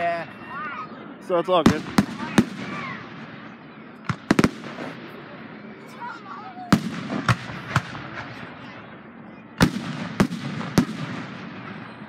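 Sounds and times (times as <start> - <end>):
fireworks bangs with echo: 1.6 - 5.2, 6.7 - 8.9, 9.6 - 12.0.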